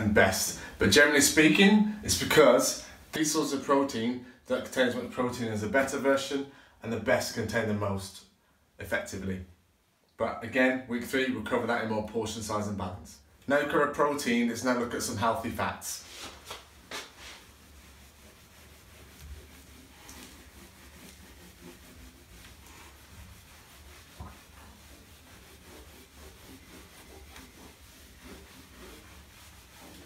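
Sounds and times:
cloth rubbing whiteboard: 13.5 - 30.0.

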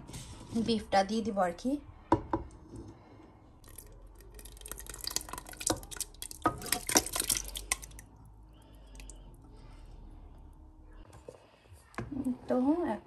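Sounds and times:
wet food splattering and plopping: 3.6 - 9.4.

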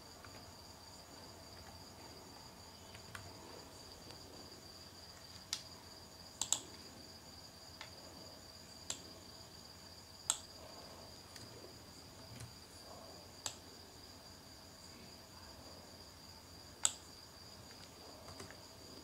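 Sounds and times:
faint high-pitched hum: 0.0 - 19.0
computer mouse clicks: 2.9 - 3.3, 6.4 - 6.8, 8.8 - 9.1, 10.3 - 10.5, 13.4 - 13.7, 16.8 - 17.0, 17.6 - 18.6.

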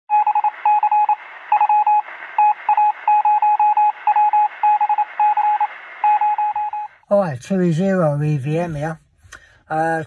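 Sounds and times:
morse code beeps: 0.1 - 7.0.

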